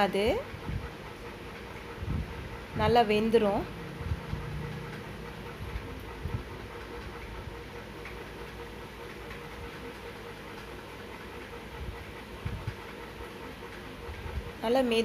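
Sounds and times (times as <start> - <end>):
machine-like rumble and hiss: 0.0 - 15.0.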